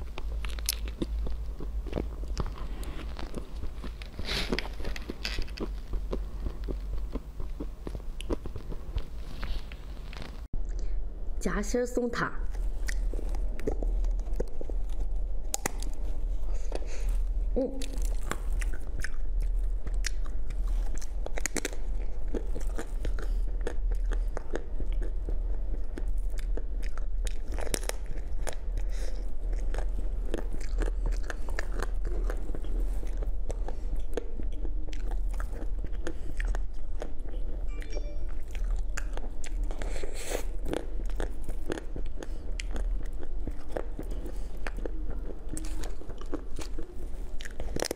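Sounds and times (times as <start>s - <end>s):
chocolate shell crunching: 0.0s - 9.2s
chewing soft filling: 0.0s - 11.0s, 12.4s - 47.9s
steady low hum: 0.0s - 47.9s.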